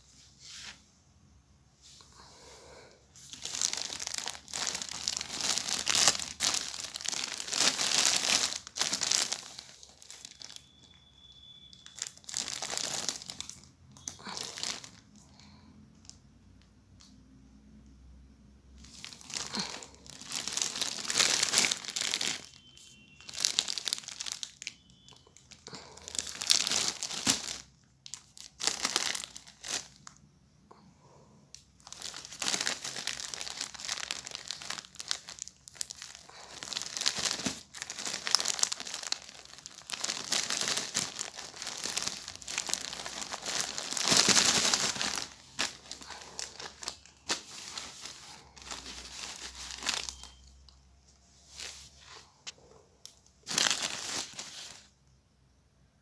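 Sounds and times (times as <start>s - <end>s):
plastic wrapping crinkling: 3.2s - 16.2s, 18.8s - 30.2s, 31.5s - 50.8s, 51.5s - 54.9s
paper napkins rustling: 36.9s - 50.4s, 53.4s - 54.9s.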